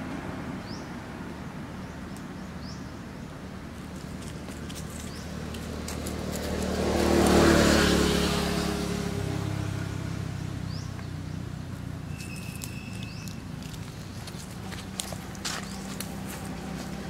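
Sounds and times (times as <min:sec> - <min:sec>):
vehicle driving past: 0:05.1 - 0:17.0.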